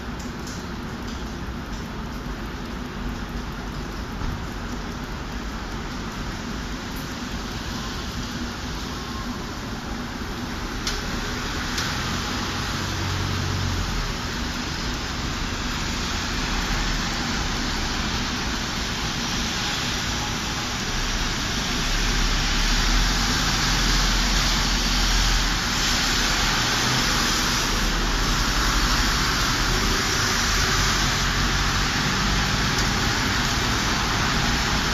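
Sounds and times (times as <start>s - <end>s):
traffic on wet street: 0.0s - 34.9s.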